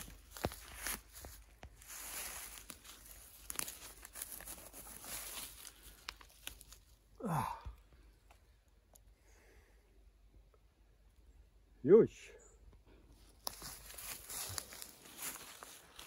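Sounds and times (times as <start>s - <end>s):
dry leaves rustling and crunching: 0.0s - 7.0s, 13.2s - 16.0s
mushroom pulled from ground: 0.0s - 9.0s, 13.2s - 16.0s.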